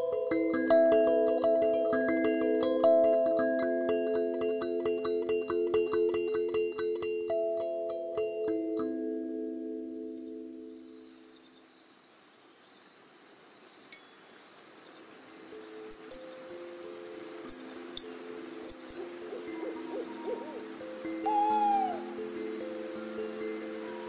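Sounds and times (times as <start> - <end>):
high cricket-like chirr: 10.1 - 24.0
owl hoot falling in pitch: 18.7 - 22.3.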